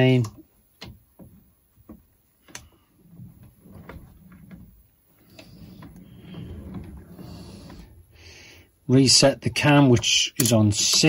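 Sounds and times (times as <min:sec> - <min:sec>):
low sliding rumble: 0:03.0 - 0:08.7.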